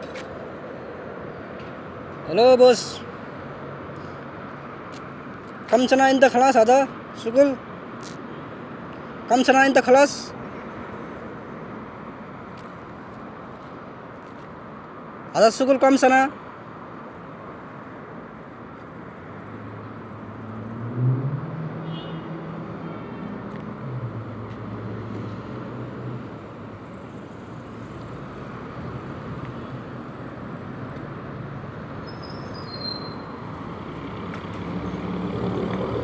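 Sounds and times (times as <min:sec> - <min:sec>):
steady hum of cars: 0:00.0 - 0:36.0
passing vehicle engine: 0:19.2 - 0:36.0.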